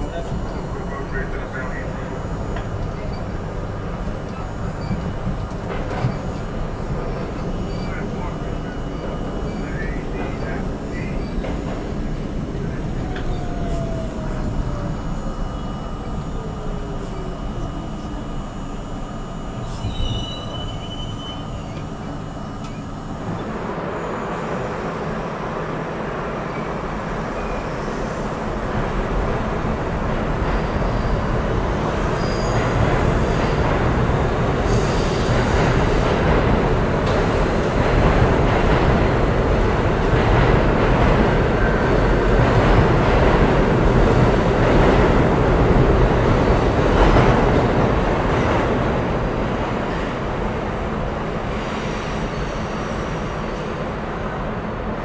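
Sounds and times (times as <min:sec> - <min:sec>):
rumble of train wheels and motors: 0:00.0 - 0:55.0
subway train motors whining: 0:00.0 - 0:55.0
train wheel squeal: 0:07.2 - 0:11.7, 0:19.6 - 0:22.0, 0:26.5 - 0:28.2, 0:32.0 - 0:33.7, 0:34.7 - 0:36.3, 0:51.5 - 0:54.0.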